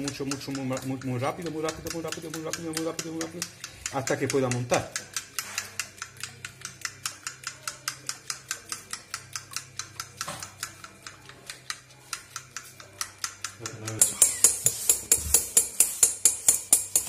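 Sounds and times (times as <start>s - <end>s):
fork clicking against bowl: 0.0s - 17.0s.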